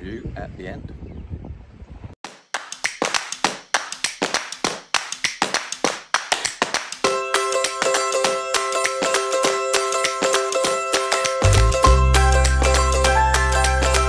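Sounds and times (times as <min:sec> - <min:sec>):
wind on microphone: 0:00.0 - 0:02.2
hand claps: 0:02.3 - 0:11.8
plucked string instrument: 0:07.1 - 0:14.0.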